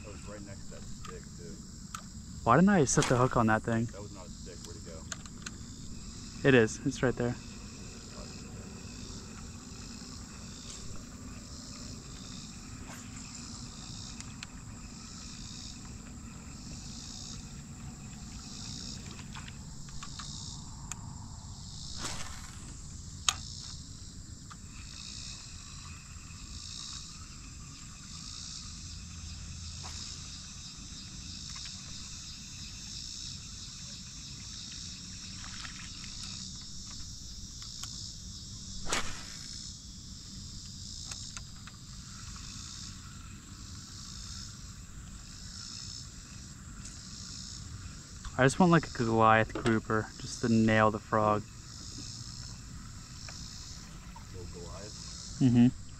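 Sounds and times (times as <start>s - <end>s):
high-pitched insect chorus: 0.0s - 55.9s.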